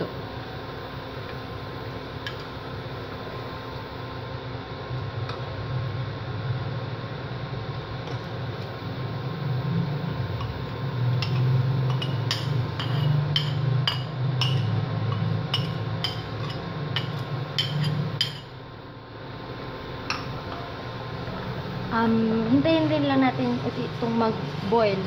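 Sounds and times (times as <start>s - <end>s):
metal spoon scraping a cup: 11.2s - 13.6s.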